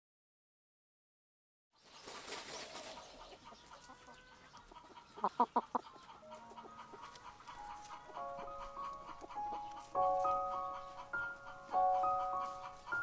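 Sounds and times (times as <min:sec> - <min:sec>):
rustling in dry straw and dirt: 0:01.8 - 0:04.7, 0:06.4 - 0:13.0
hens clucking: 0:01.8 - 0:13.0.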